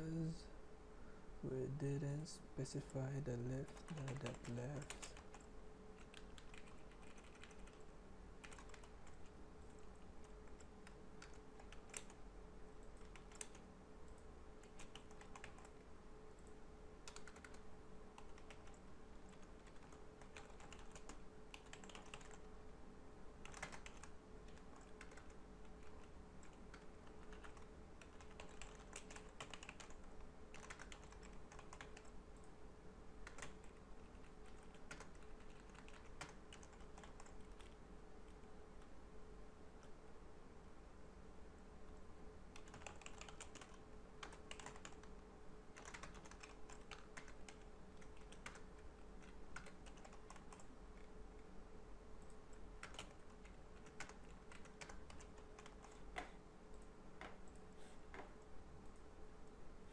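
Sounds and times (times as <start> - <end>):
low steady hum: 0.0 - 59.9
computer keyboard typing: 3.5 - 12.2, 12.8 - 15.8, 16.4 - 22.5, 23.4 - 32.6, 33.2 - 38.5, 42.5 - 51.1, 52.2 - 58.3.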